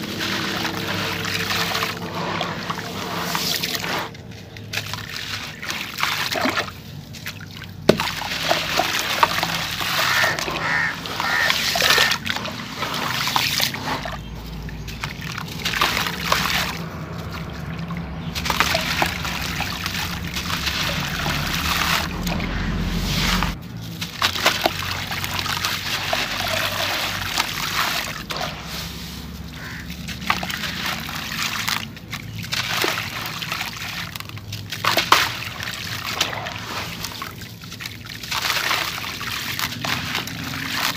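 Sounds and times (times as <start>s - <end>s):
grit splashing into water: 0.0s - 40.9s
water sloshing: 0.0s - 40.9s.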